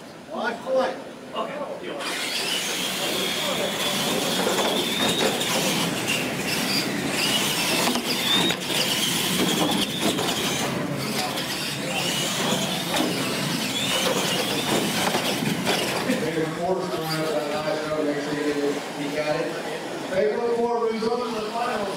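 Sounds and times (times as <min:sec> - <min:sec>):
toy truck motors whining: 0:02.0 - 0:16.2
tyre noise on track: 0:02.2 - 0:16.3.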